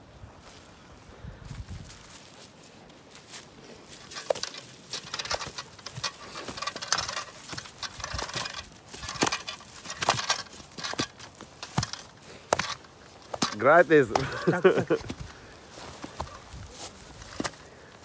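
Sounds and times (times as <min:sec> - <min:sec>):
rustles of net and dry leaves: 0:00.0 - 0:18.0.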